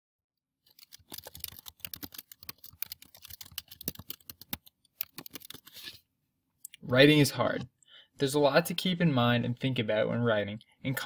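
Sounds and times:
typing on computer keyboard: 0:00.6 - 0:05.7.

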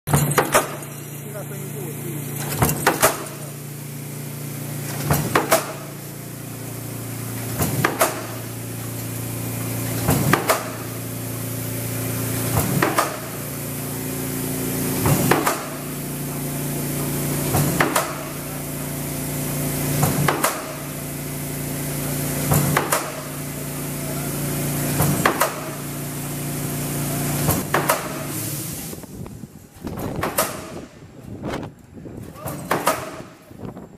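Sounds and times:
power press clanking: 0:00.1 - 0:01.6, 0:02.2 - 0:03.7, 0:07.3 - 0:11.0
steady machine hum: 0:00.1 - 0:29.8.

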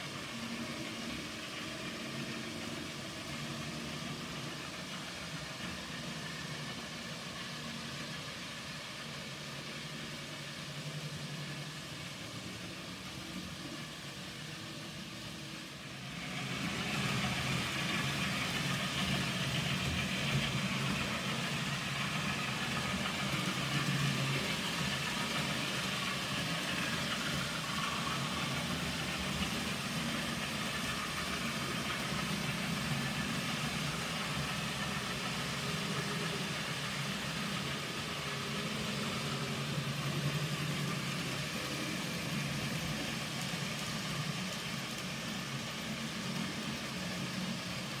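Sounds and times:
model train motor hum: 0:00.0 - 0:48.0
model train wheels rumbling on track: 0:00.0 - 0:48.0.

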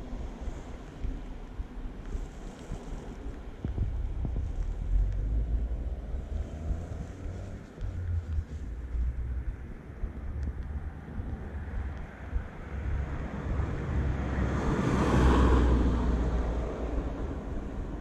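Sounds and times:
wind rumbling on microphone: 0:00.0 - 0:18.0
car passing: 0:04.0 - 0:18.0.

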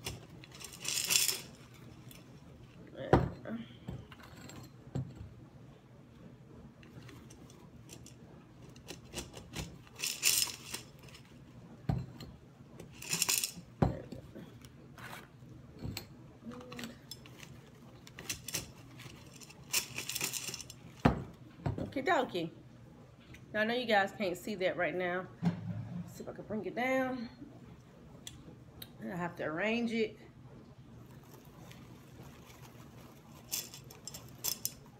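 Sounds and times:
stones rattling in glass vase: 0:00.0 - 0:02.2, 0:08.8 - 0:11.3, 0:12.9 - 0:14.0, 0:17.0 - 0:21.2, 0:33.3 - 0:34.9.

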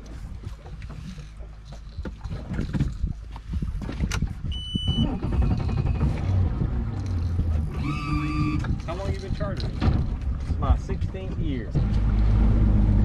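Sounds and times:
boat motor droning: 0:04.4 - 0:13.0
short electronic beep: 0:04.5 - 0:06.1, 0:07.8 - 0:08.7
knocks and clatter on deck: 0:09.6 - 0:10.2.

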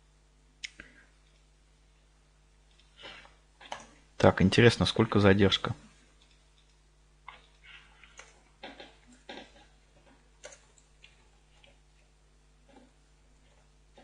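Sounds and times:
low electrical hum: 0:00.0 - 0:14.0
mouse and keyboard clicks: 0:06.2 - 0:11.8.

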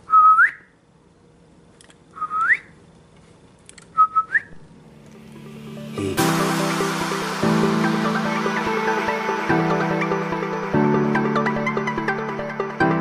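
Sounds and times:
person whistling rising notes: 0:02.2 - 0:02.7, 0:04.0 - 0:04.6.

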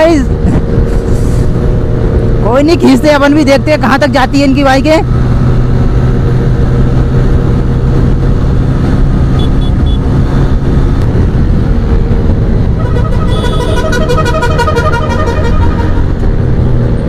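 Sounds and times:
wind rushing on microphone: 0:00.0 - 0:03.8, 0:04.6 - 0:14.4
motorcycle engine drone: 0:00.0 - 0:17.0
warbling vehicle horn: 0:12.8 - 0:16.4.

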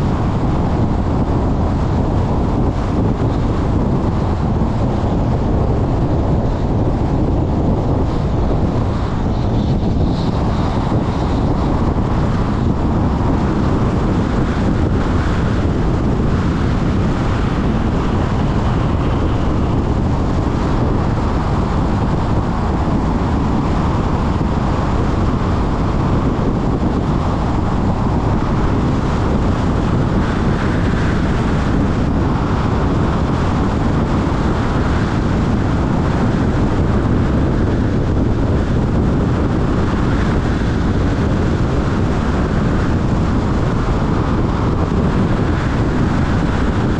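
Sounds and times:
car road and wind noise: 0:00.0 - 0:46.9
wind rumbling on microphone: 0:00.0 - 0:46.9.

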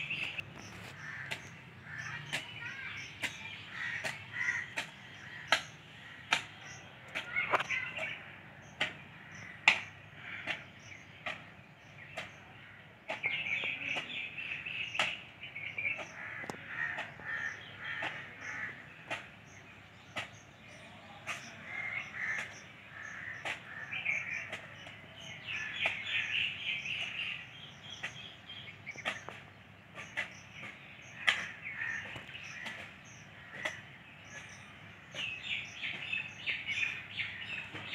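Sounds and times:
crows cawing: 0:00.8 - 0:06.5, 0:09.2 - 0:11.4, 0:15.9 - 0:19.3, 0:21.3 - 0:24.8, 0:25.4 - 0:26.5, 0:31.1 - 0:33.9.

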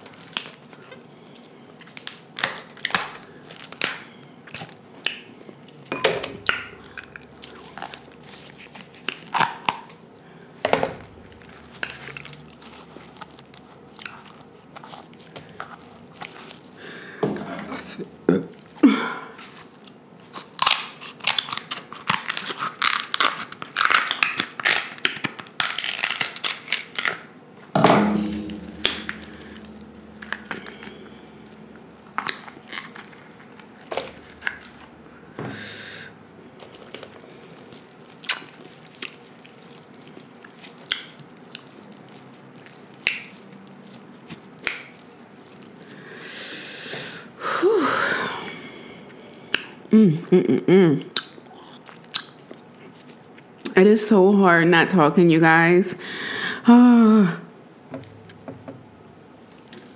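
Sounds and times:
chewing and mouth sounds: 0:11.1 - 0:16.8, 0:36.4 - 0:46.1, 0:48.5 - 0:50.3, 0:51.0 - 0:53.8, 0:59.2 - 0:59.9
crab shell cracking: 0:20.4 - 0:27.3.

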